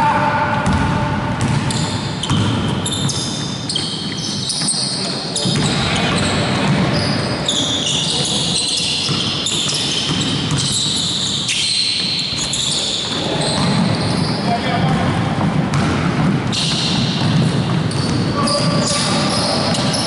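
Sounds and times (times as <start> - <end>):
basketball bouncing on hardwood: 0.6 - 3.4, 9.0 - 11.0, 13.6 - 19.1
sneakers squeaking on wooden floor: 1.4 - 20.0.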